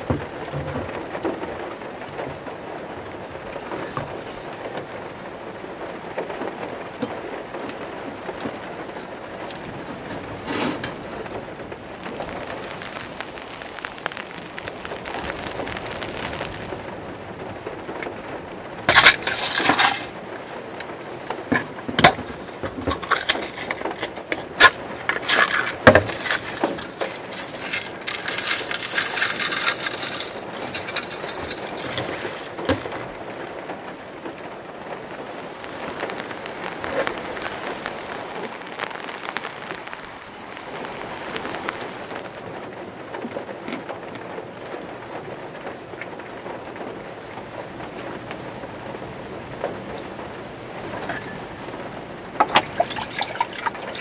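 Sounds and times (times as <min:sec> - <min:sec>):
rain on a van roof: 0:00.0 - 0:54.0
plastic bag crinkling: 0:07.7 - 0:17.2, 0:18.8 - 0:20.4, 0:21.2 - 0:33.2, 0:35.2 - 0:42.4, 0:52.4 - 0:54.0.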